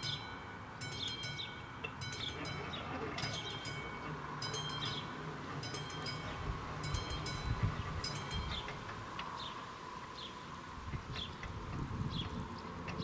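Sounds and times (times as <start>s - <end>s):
level crossing warning bell: 0.0s - 9.2s.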